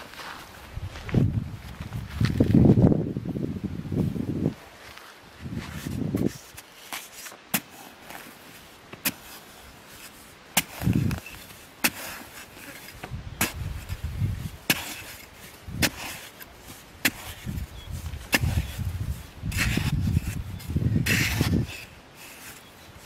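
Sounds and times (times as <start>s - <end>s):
dirt crumbling and sliding: 0.0s - 23.0s
digging blade chopping into soil: 5.8s - 22.7s.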